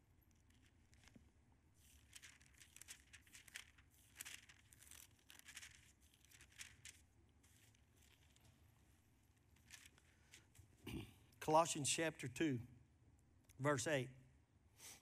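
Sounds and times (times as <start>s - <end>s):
paper pages rustling: 0.3s - 1.2s, 1.8s - 8.6s, 9.4s - 10.7s.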